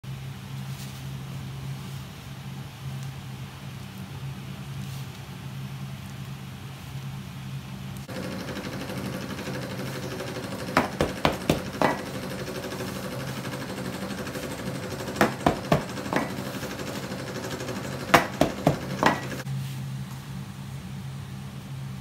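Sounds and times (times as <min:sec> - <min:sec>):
metal cutter tapping on counter: 0:10.2 - 0:12.2, 0:15.0 - 0:16.7, 0:18.1 - 0:19.4.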